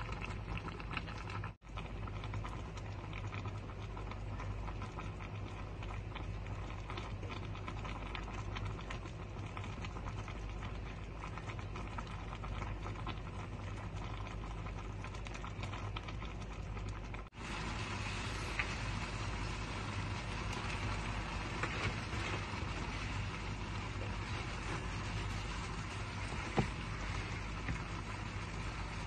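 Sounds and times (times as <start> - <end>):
low hum: 0.0 - 29.0
food sizzling in broth: 17.3 - 29.0.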